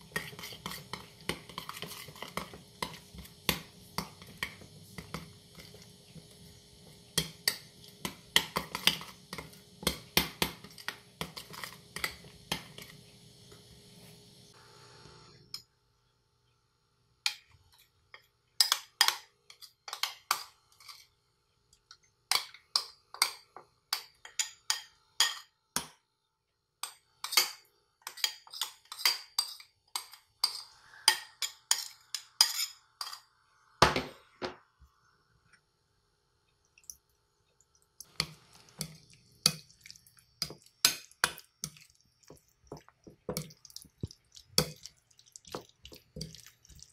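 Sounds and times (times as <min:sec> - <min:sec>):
metal spoon scraping ceramic bowl: 0:28.1 - 0:33.3.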